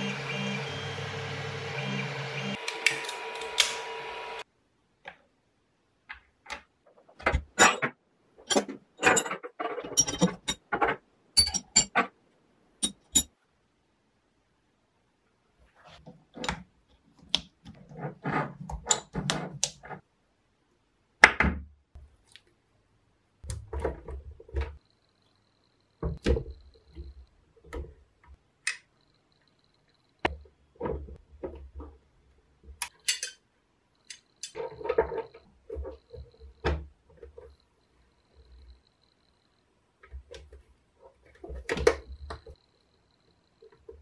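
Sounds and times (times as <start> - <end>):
metal tools clicking and knocking: 7.6 - 12.1, 12.8 - 13.3, 32.8 - 33.4, 34.0 - 35.4.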